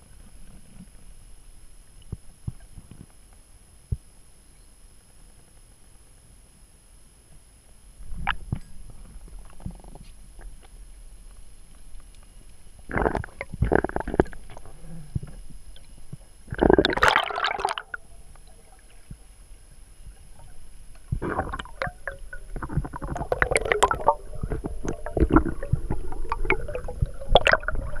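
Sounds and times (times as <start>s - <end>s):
underwater air bubbles: 12.0s - 28.0s.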